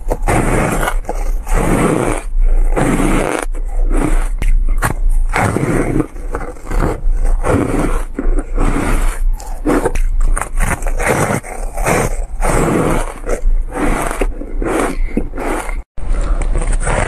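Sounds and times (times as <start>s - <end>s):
crunching and chewing ice: 0.0s - 17.0s.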